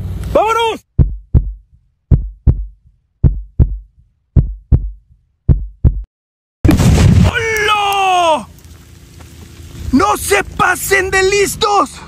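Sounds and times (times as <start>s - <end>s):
heartbeat double thumps: 0.8s - 6.1s.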